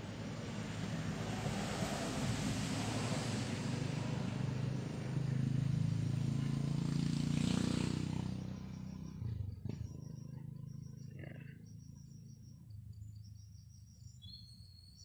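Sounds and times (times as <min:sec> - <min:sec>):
passing vehicle engine hum: 0:00.0 - 0:13.4.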